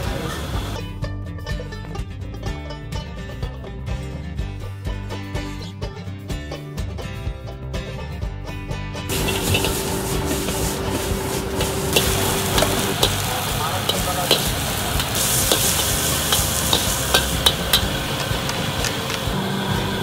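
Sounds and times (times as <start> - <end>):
wok sizzling: 0.0 - 0.8, 9.1 - 20.0
metal spatula scraping wok: 9.1 - 19.1.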